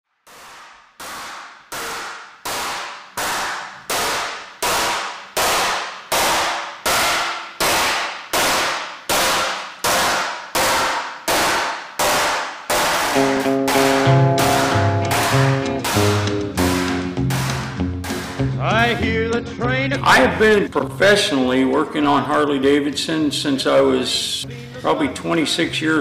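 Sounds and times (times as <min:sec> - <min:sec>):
sharp clanging strikes: 0:00.3 - 0:18.6.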